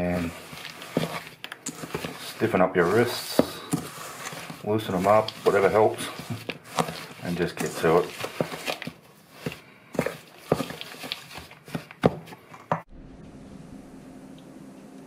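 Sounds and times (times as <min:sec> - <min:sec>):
wooden spoon scraping metal bowl: 0:00.0 - 0:12.5
steady low hum: 0:12.9 - 0:15.0.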